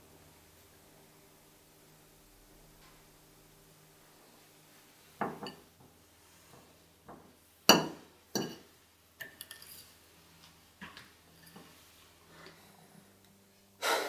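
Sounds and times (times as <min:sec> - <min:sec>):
metal fork clinking on plate: 0:09.2 - 0:09.8.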